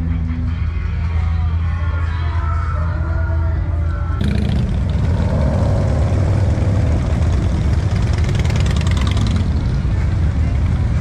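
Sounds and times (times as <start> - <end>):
motorcycle engines rumbling: 3.7 - 11.0.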